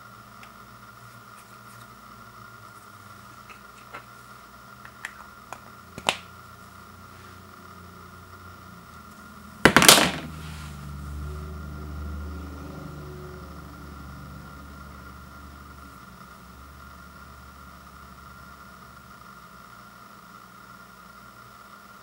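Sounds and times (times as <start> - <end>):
plastic stick clattering on wood floor: 9.6 - 10.4.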